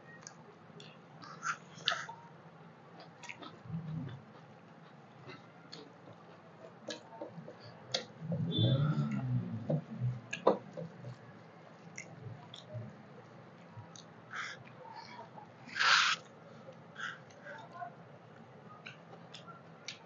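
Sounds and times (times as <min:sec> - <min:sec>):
chewing: 0:03.0 - 0:07.1.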